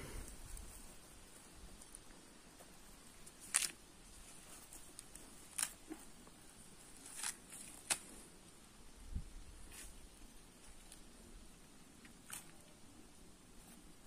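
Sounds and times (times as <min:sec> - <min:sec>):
corn husks ripping: 0:03.2 - 0:06.1, 0:06.9 - 0:08.2, 0:12.0 - 0:12.7.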